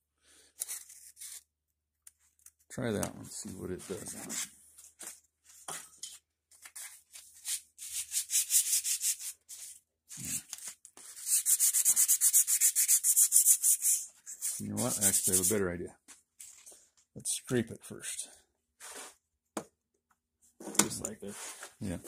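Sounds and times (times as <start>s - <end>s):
sandpaper rubbing on wood: 7.4s - 9.4s, 11.1s - 15.6s.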